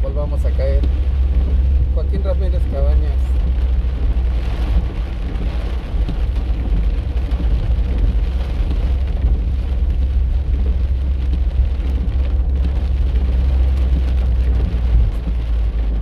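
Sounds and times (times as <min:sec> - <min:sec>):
car cabin rumble: 0:00.0 - 0:16.0
rain on the car: 0:00.0 - 0:16.0.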